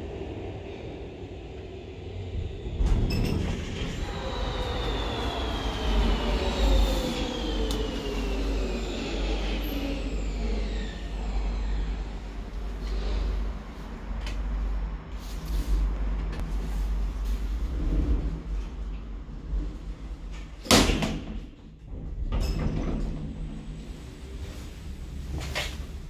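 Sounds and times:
elevator low rumble: 0:00.0 - 0:26.0
high whine falling in pitch: 0:02.8 - 0:12.4.

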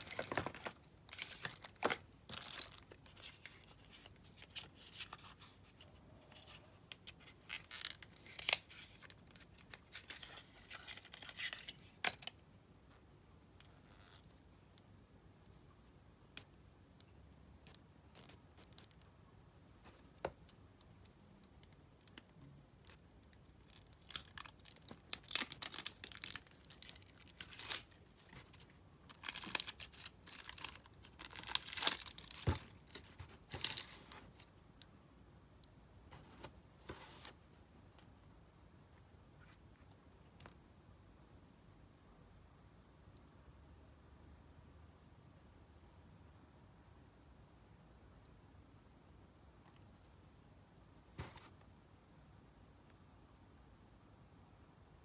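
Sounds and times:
plastic packaging crinkling: 0:00.0 - 0:05.1, 0:23.6 - 0:34.4.

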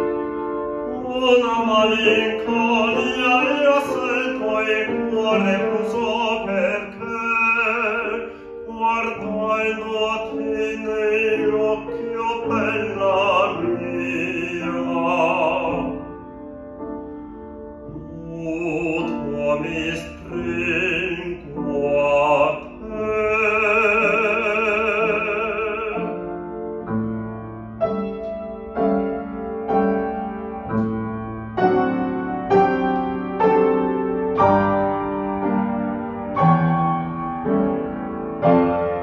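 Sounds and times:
grand piano: 0:00.0 - 0:39.0
man singing classical song: 0:00.5 - 0:16.2, 0:17.8 - 0:26.8.

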